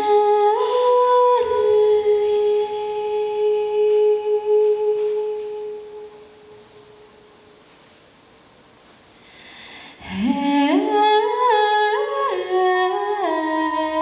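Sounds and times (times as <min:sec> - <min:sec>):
person humming a melody: 0:00.0 - 0:07.1, 0:10.0 - 0:14.0
faint hiss: 0:00.0 - 0:14.0.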